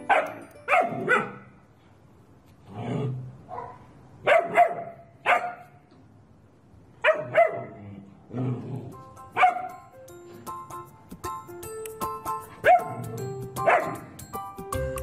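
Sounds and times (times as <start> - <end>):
background music: 0.0 - 1.4, 8.9 - 15.0
puppy barking: 0.0 - 1.6, 3.5 - 5.8, 7.0 - 7.8, 9.4 - 9.8, 12.6 - 14.2.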